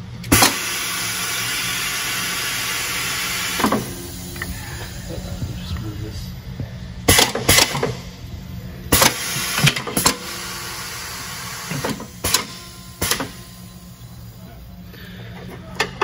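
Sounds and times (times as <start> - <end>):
tire changer humming: 0.0 - 16.0
clunks and snaps of tire bead: 11.7 - 13.4.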